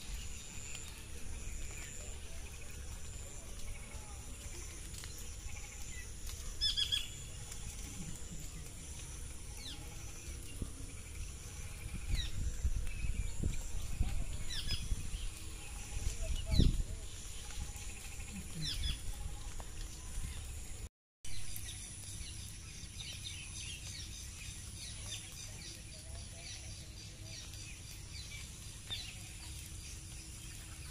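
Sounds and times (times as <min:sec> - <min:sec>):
high buzz of insects: 0:00.0 - 0:19.6
wind rumbling on microphone: 0:00.0 - 0:20.9.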